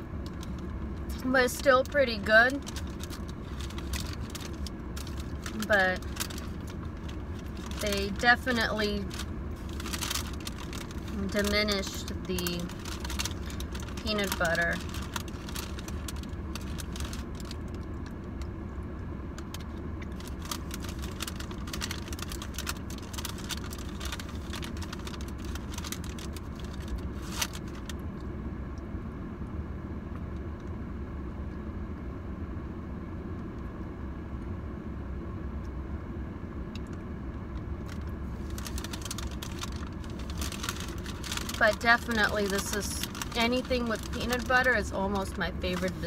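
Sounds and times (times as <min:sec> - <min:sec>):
car idling: 0:00.0 - 0:32.1, 0:34.7 - 0:46.0
paper bag crinkling: 0:01.6 - 0:18.1, 0:19.4 - 0:28.0, 0:37.8 - 0:46.0.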